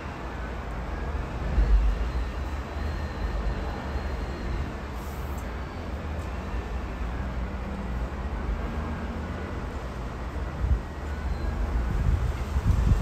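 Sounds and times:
distant road traffic hiss: 0:00.0 - 0:13.0
gusty wind buffeting microphone: 0:10.0 - 0:13.0.

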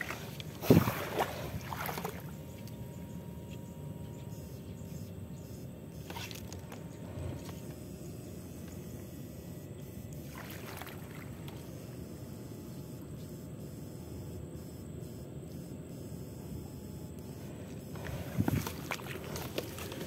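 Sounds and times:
sharp splash: 0:00.0 - 0:02.3
water sloshing and splashing: 0:00.0 - 0:03.1, 0:10.2 - 0:11.7, 0:17.9 - 0:20.0.

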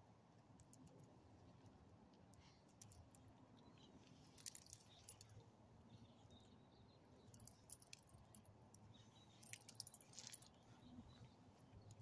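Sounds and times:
dog collar tags jingling: 0:09.3 - 0:10.6.

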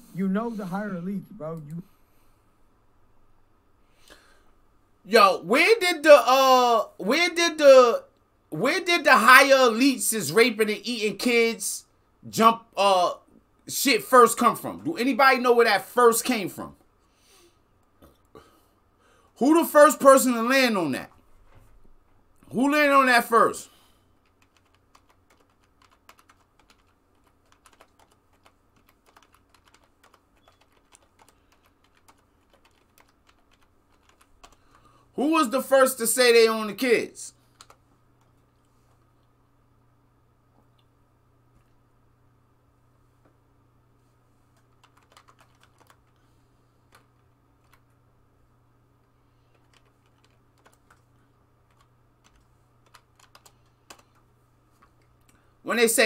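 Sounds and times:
low steady hum: 0:00.0 - 0:56.0
typing on computer keyboard: 0:24.2 - 0:34.9, 0:37.6 - 0:37.8, 0:44.6 - 0:46.2, 0:46.9 - 0:47.9, 0:49.5 - 0:51.1, 0:51.7 - 0:54.2.

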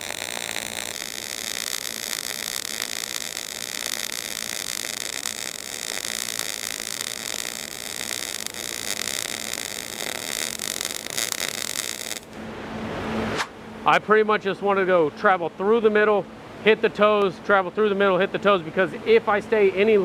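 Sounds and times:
welding arc crackling hiss: 0:00.0 - 0:12.4.

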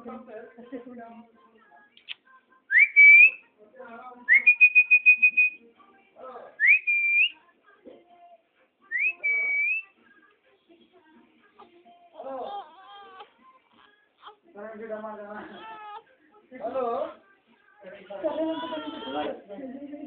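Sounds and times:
person whistling: 0:02.7 - 0:03.4, 0:04.3 - 0:05.6, 0:06.6 - 0:07.3, 0:08.9 - 0:09.9.

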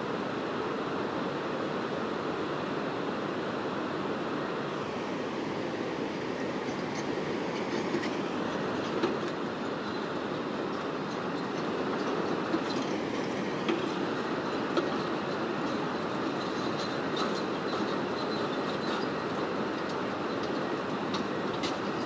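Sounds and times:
river water rushing: 0:00.0 - 0:22.0
excavator tracks clanking and squealing: 0:06.4 - 0:22.0.

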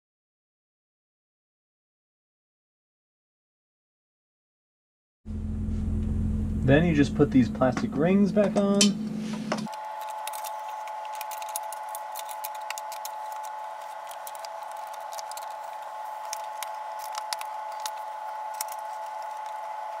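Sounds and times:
steady hum: 0:05.3 - 0:20.0.

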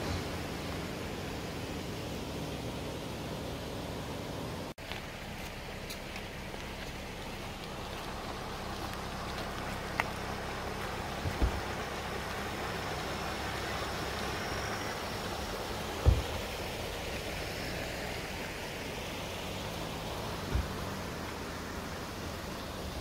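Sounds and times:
rocky stream flowing: 0:00.0 - 0:23.0
dull low thumps: 0:06.2 - 0:12.8, 0:15.8 - 0:16.8, 0:20.3 - 0:21.2.

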